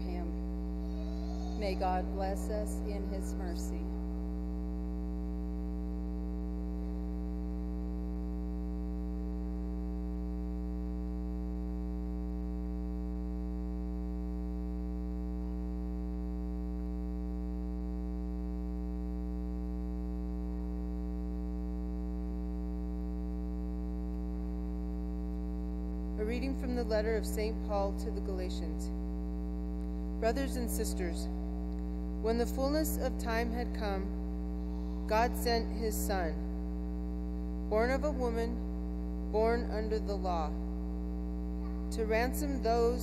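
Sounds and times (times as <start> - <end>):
electrical mains hum: 0.0 - 43.0.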